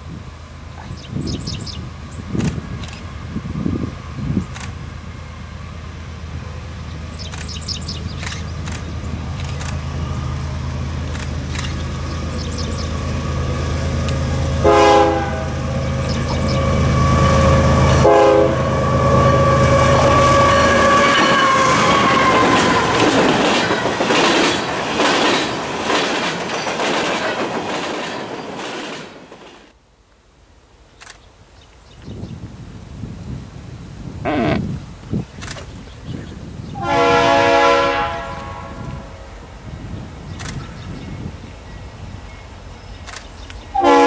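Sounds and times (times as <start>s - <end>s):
diesel locomotives passing: 0.0s - 29.8s, 32.4s - 44.0s
train horn blasts: 14.4s - 22.9s, 36.7s - 39.3s, 43.7s - 44.0s
wheels clacking over rail joints: 20.9s - 29.8s.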